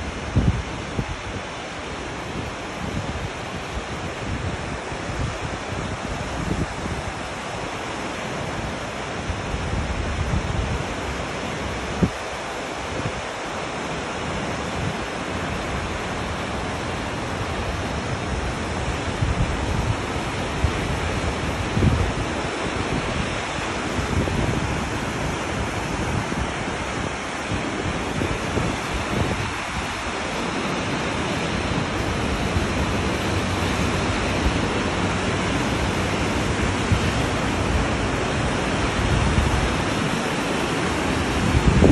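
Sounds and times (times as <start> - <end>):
wind buffeting microphone: 0.0 - 1.7, 2.3 - 7.5, 14.4 - 41.9
river rushing over boulders: 0.0 - 41.9.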